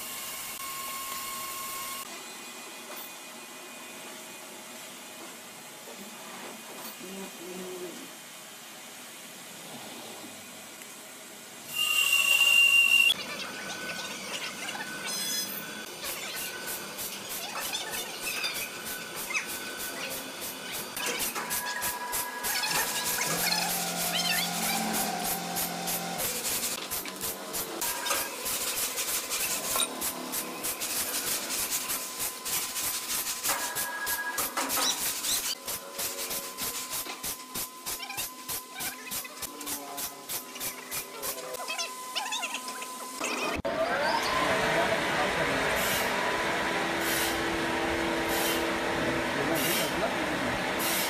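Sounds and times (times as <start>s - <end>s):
faint high whine: 11.6s - 16.6s
short beeps: 11.7s - 14.2s
high-pitched metallic squeal: 11.7s - 26.6s.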